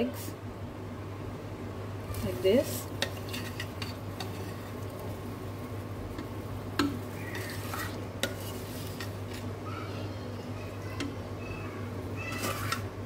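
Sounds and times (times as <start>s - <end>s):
steady low hum: 0.0s - 13.0s
utensil clinking against a pot: 3.0s - 4.9s, 6.1s - 9.5s.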